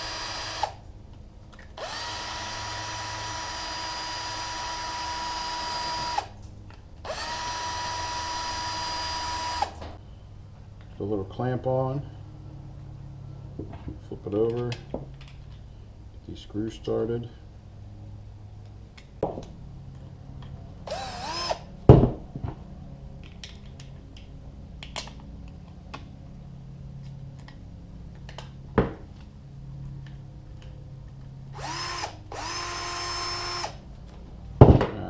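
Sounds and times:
cordless drill spinning: 0:00.0 - 0:00.8, 0:01.7 - 0:06.4, 0:07.0 - 0:09.8, 0:20.9 - 0:21.7, 0:31.5 - 0:33.9.

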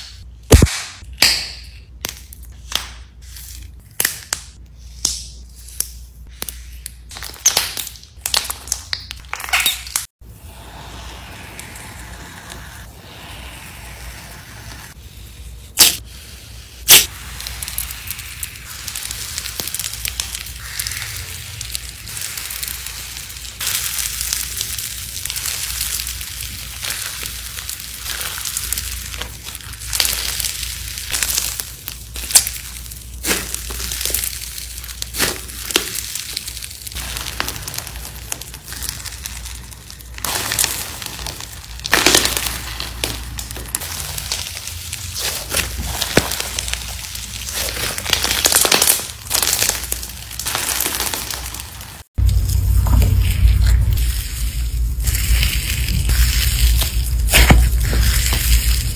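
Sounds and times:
sharp loud slime pops: 0:00.5 - 0:01.5
slime squishing and crackling: 0:01.8 - 0:58.9.

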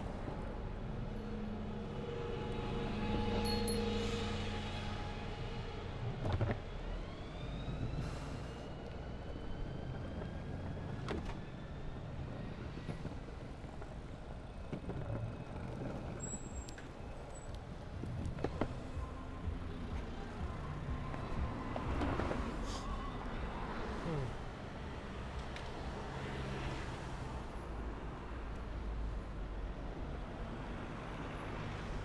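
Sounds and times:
street traffic passing: 0:00.0 - 0:32.0
longboard wheels rolling on asphalt: 0:08.7 - 0:22.6.

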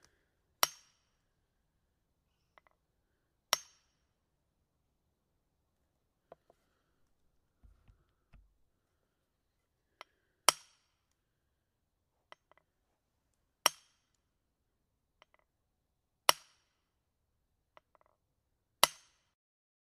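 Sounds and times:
hammer striking iron wedge: 0:00.6 - 0:01.0, 0:03.5 - 0:03.8.

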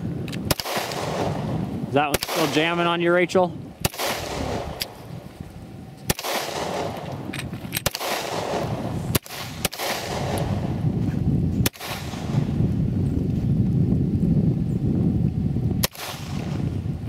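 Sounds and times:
steady low rumble: 0:00.0 - 0:17.0
handgun shots: 0:00.4 - 0:01.4, 0:02.1 - 0:02.8, 0:03.8 - 0:05.0, 0:06.1 - 0:10.5.

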